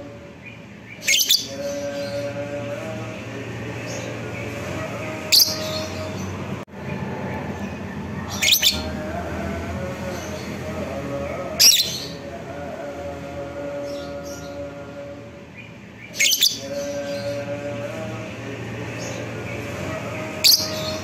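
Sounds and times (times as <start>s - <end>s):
bird shrill calls: 8.3s - 8.9s.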